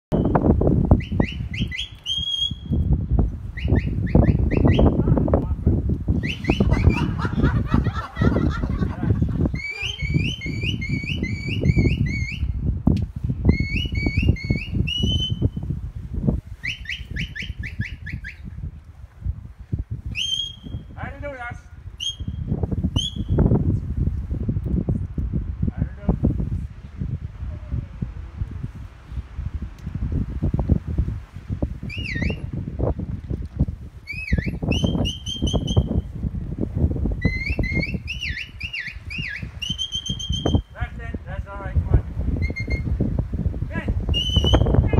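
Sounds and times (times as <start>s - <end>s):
wind buffeting microphone: 0.1s - 44.9s
person whistling: 9.6s - 12.5s, 13.5s - 15.5s, 34.1s - 36.0s, 37.2s - 40.6s, 44.1s - 44.7s.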